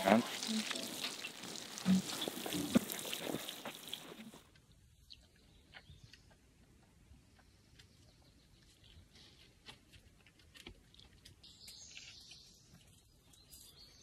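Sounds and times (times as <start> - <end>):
faint high bird chirping: 11.4 - 14.0.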